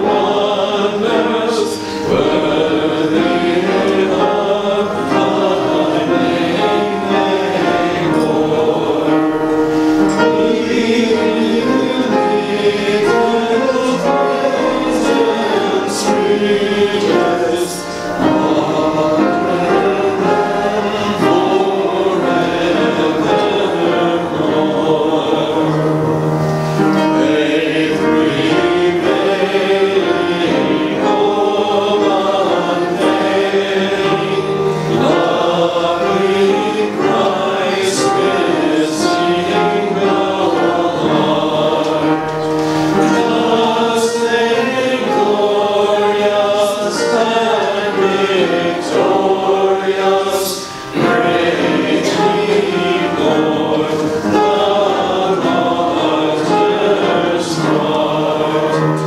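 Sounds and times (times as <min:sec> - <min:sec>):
church choir singing: 0:00.0 - 0:59.0.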